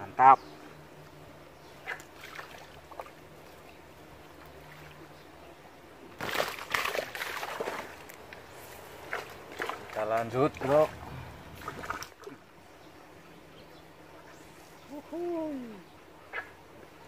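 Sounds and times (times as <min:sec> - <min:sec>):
water splashing and sloshing: 0:01.6 - 0:12.6.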